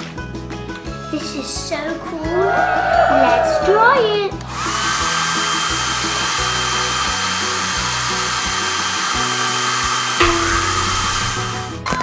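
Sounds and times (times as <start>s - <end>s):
hair dryer running: 4.6s - 10.2s.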